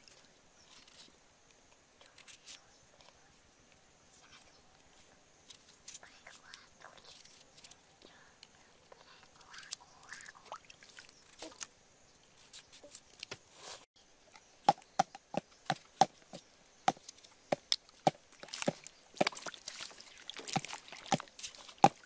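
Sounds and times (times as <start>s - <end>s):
water splashing in bowl: 18.1s - 22.0s.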